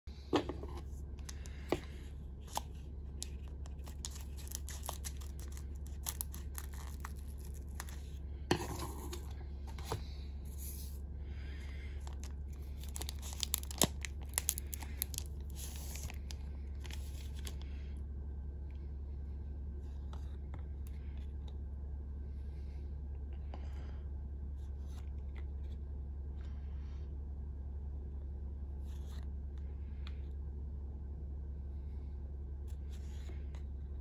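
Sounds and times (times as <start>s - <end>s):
steady low hum: 0.1s - 34.0s
foil wrapper crinkling and tearing: 2.4s - 8.2s, 12.0s - 17.6s.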